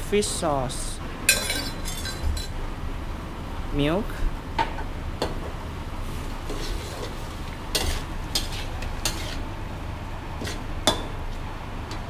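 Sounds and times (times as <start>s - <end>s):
spatula scraping against a wok: 6.0s - 9.5s, 10.4s - 10.7s.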